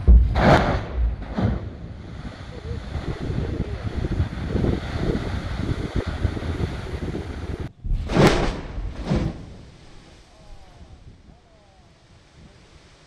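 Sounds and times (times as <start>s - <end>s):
underwater explosion rumble: 0.0s - 11.3s
wind buffeting microphone: 0.0s - 13.0s.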